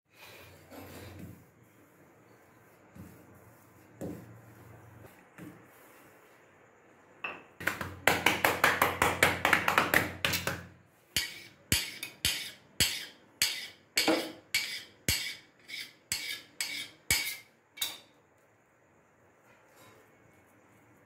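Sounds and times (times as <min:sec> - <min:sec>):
knife striking stone countertop: 0:11.2 - 0:18.1.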